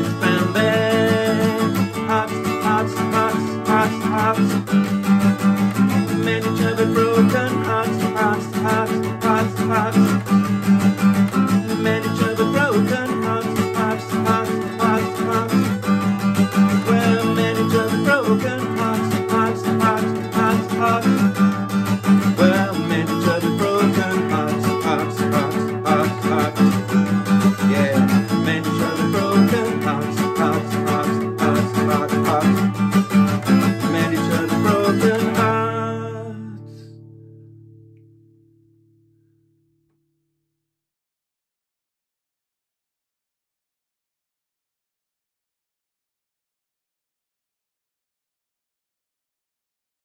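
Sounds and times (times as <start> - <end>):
acoustic guitar strumming: 0.0 - 39.3.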